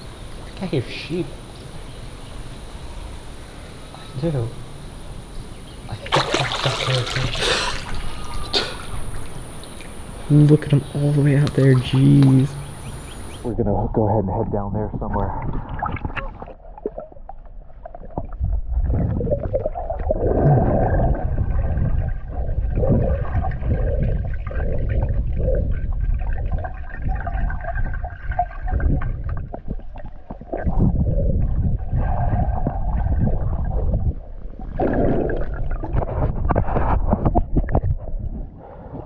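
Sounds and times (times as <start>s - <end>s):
water washing: 5.9s - 13.5s
gurgling and bubbling: 5.9s - 13.6s, 14.7s - 39.0s
muffled underwater water rumble: 6.9s - 39.0s.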